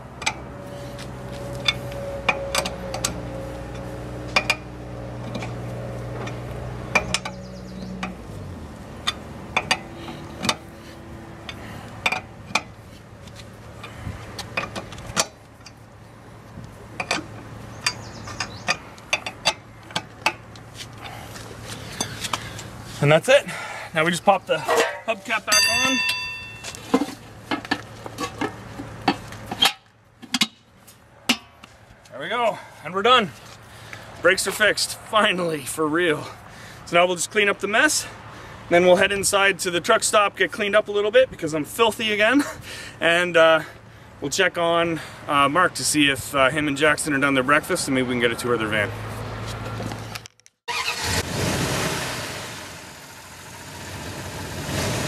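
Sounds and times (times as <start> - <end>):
vehicle engine running: 0.0 - 24.7, 51.3 - 55.0.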